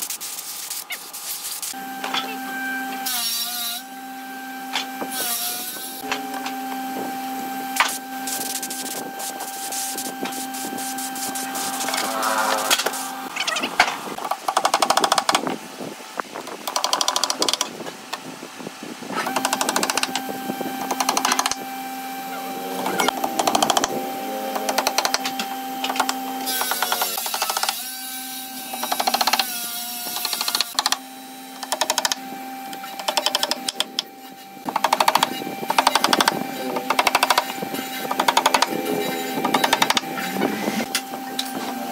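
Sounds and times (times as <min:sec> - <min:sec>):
steady hum: 0:06.1 - 0:14.2.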